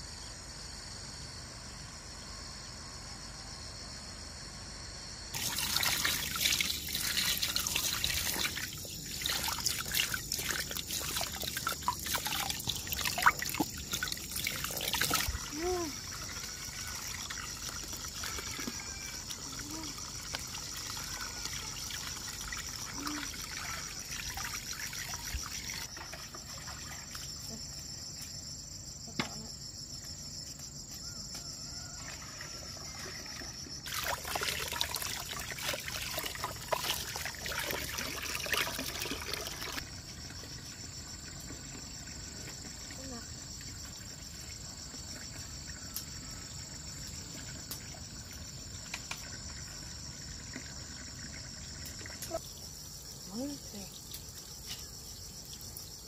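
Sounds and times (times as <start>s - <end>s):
insects chirring: 0.0s - 56.0s
water splashing: 5.4s - 27.3s, 33.8s - 39.8s
water trickling into plastic basin: 5.4s - 27.6s, 31.9s - 52.7s.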